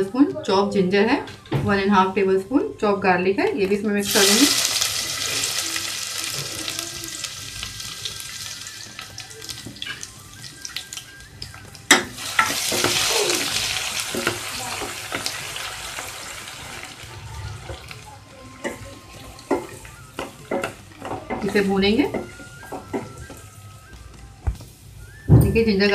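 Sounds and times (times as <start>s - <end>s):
garlic sizzling in hot oil: 4.0s - 22.9s.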